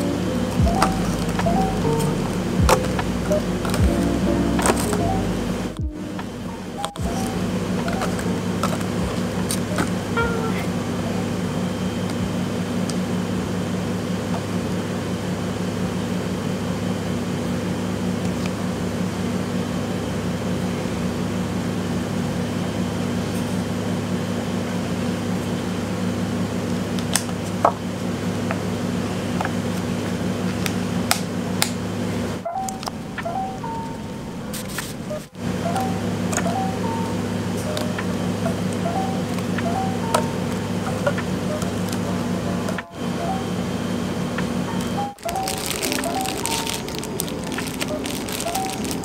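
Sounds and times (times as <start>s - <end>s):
kitchen machinery humming: 0.0s - 49.0s
plastic cups and lids clicking: 45.2s - 49.0s.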